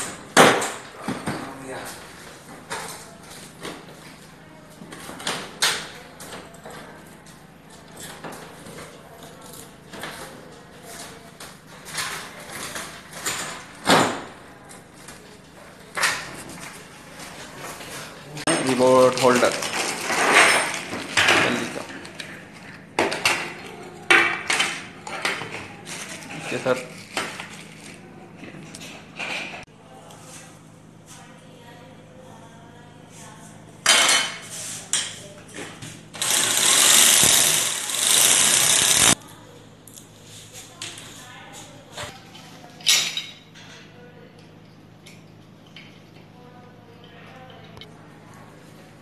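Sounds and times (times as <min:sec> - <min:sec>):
hammer drill boring into wall: 0:36.2 - 0:39.2.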